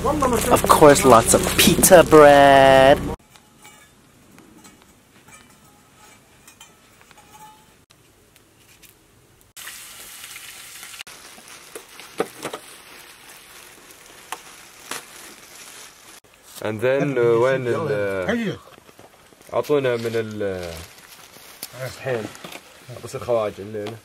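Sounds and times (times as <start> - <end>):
onions sizzling in oil: 9.5 - 16.2.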